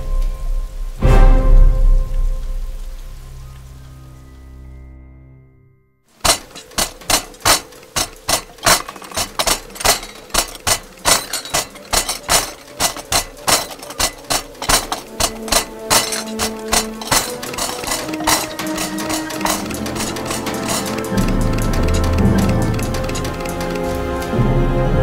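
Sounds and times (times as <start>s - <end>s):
cutlery clattering on plates: 6.2s - 24.1s.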